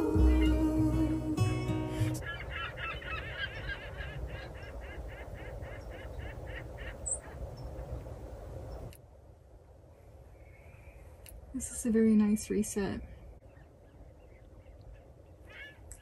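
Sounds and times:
low steady rumble: 0.0s - 2.5s
repeated bird calls: 2.1s - 8.0s.

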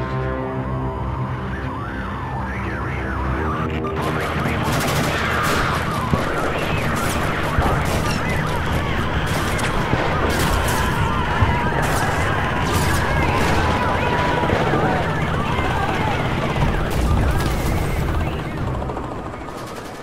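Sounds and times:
gunshots: 3.9s - 18.5s.

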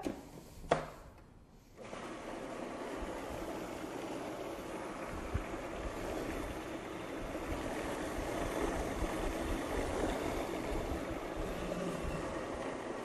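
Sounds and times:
food processor motor running: 1.8s - 13.0s.

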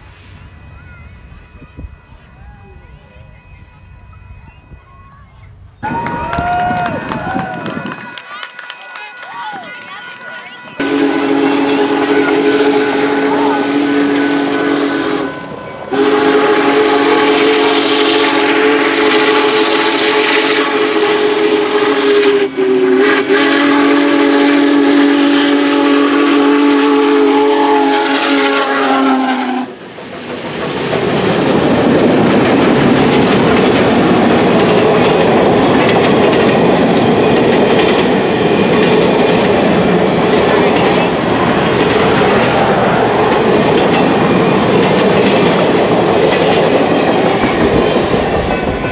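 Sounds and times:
train cars rolling on rails: 0.0s - 48.9s
steam whistle blowing: 10.8s - 29.8s.

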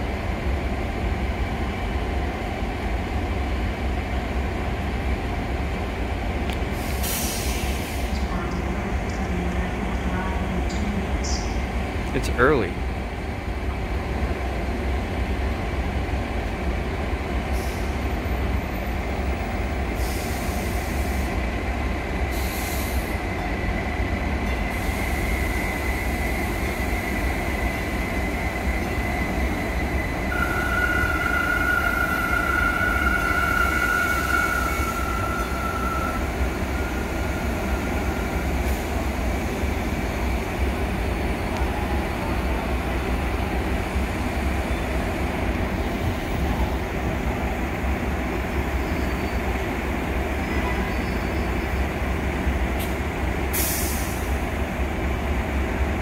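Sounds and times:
train rumble: 0.0s - 56.0s
high brake squeal: 30.3s - 38.5s.

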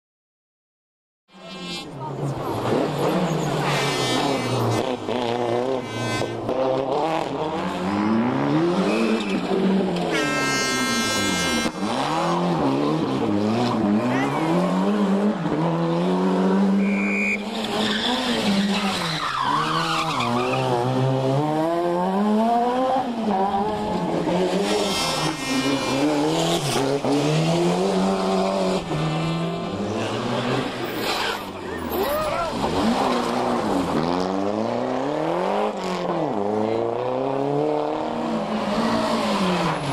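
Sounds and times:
rally car engines revving: 1.3s - 39.9s.

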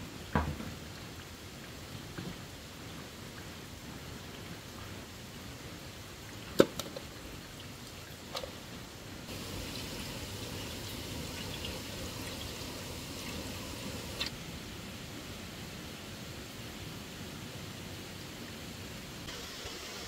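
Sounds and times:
steady rain: 0.0s - 20.0s
running water: 0.1s - 14.4s
hiss of falling water: 8.8s - 20.0s.

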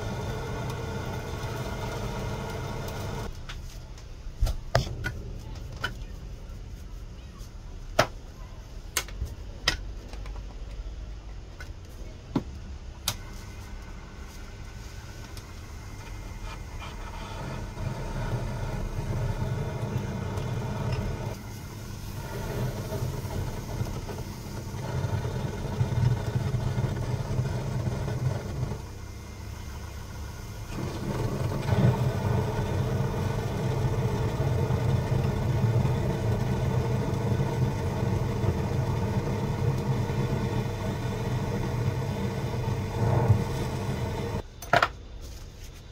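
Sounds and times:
lathe motor hum: 0.0s - 3.3s, 16.8s - 28.9s, 30.6s - 44.4s.

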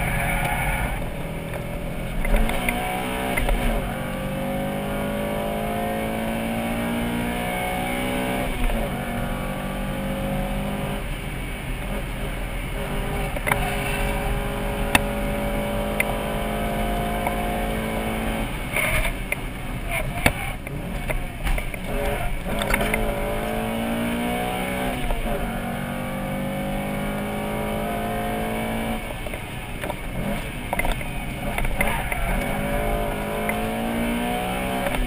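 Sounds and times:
car engine accelerating hard: 0.0s - 35.0s.

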